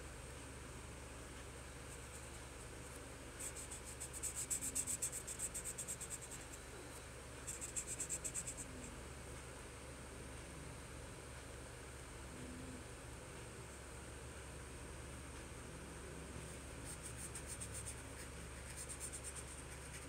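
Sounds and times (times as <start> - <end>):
marker rubbing on paper: 3.4 - 6.4, 7.5 - 8.6, 16.8 - 20.0.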